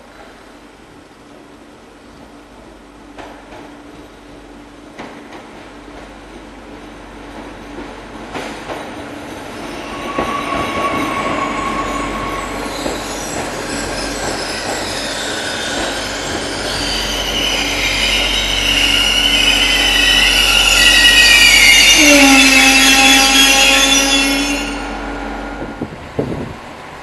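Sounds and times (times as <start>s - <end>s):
train rumble: 0.0s - 27.0s
wheels squealing on rails: 9.2s - 26.0s.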